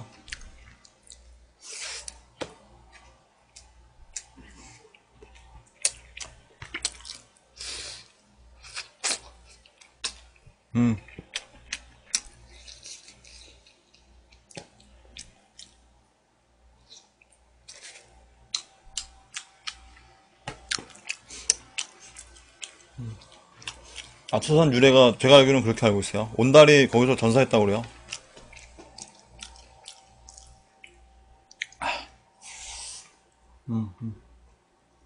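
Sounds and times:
chewing: 0.2 - 1.3, 2.9 - 7.4, 11.0 - 15.8, 16.9 - 24.4, 27.8 - 31.8
low vocal sound: 10.8 - 11.1, 23.0 - 23.3, 33.6 - 34.3.

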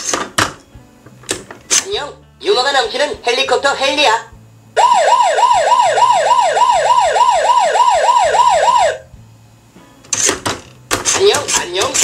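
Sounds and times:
toy ambulance siren: 4.8 - 9.0.

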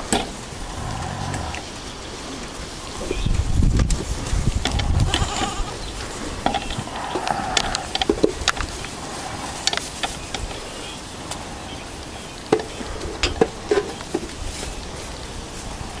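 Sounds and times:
steady low rumble: 0.0 - 13.6.

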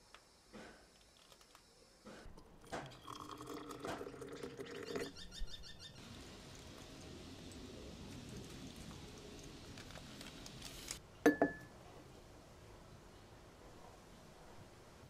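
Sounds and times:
water pouring into glass jar: 2.6 - 5.4.

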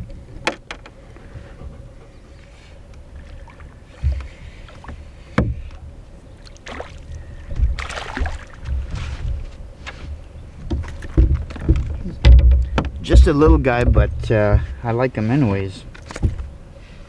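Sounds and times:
water splashing: 3.2 - 9.0
knocks in canoe: 5.3 - 5.7, 10.6 - 14.7.

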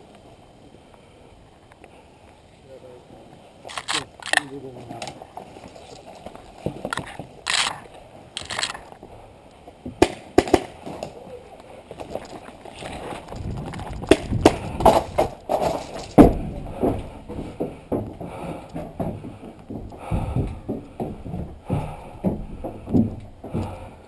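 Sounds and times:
branches and foliage rustling: 0.0 - 24.0
footsteps on wooden planks: 3.6 - 24.0
twigs snapping: 3.7 - 9.0, 12.0 - 16.2.

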